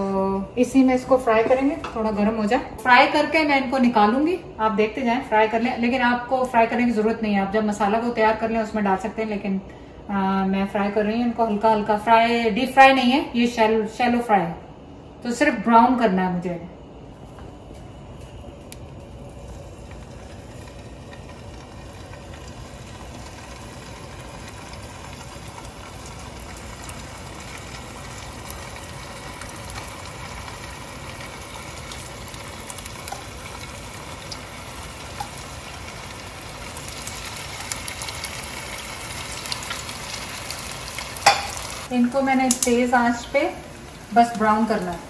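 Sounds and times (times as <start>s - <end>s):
meatballs sizzling in oil: 19.2s - 45.0s.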